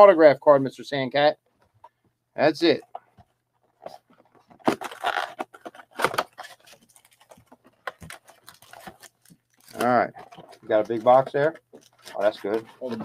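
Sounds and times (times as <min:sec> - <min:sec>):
cardboard box crinkling and rustling: 0:03.8 - 0:13.0.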